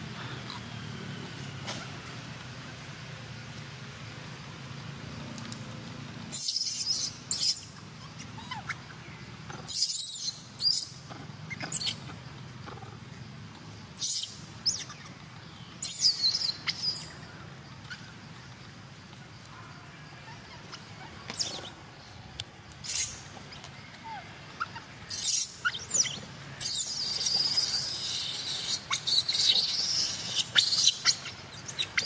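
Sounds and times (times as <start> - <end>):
infant monkey screeching: 6.3 - 9.0, 9.6 - 12.1, 14.0 - 15.1, 15.8 - 17.2, 20.2 - 21.8, 22.8 - 32.0.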